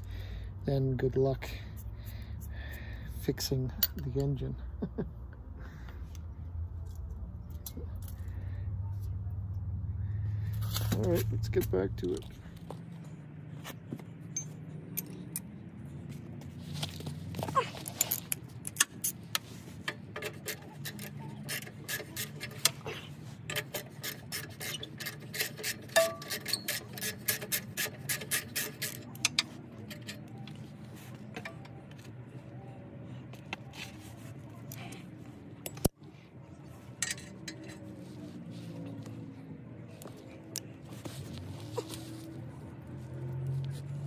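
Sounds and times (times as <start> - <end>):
metal tools scraping and clinking: 16.7 - 32.1, 36.8 - 39.0
hand ratchet clicking: 23.5 - 30.2.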